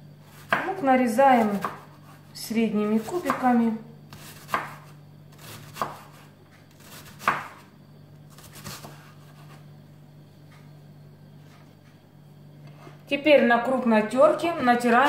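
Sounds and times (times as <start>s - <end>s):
knife chopping on wooden board: 0.3s - 0.8s, 1.6s - 2.2s, 3.0s - 3.5s, 4.1s - 7.6s, 8.3s - 9.6s.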